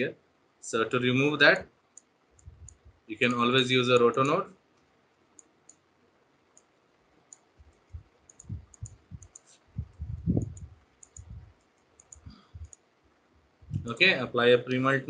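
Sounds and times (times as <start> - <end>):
computer mouse clicking: 1.9 - 3.4, 4.0 - 5.8, 6.5 - 6.7, 7.3 - 12.9
dull low thuds: 7.6 - 11.5.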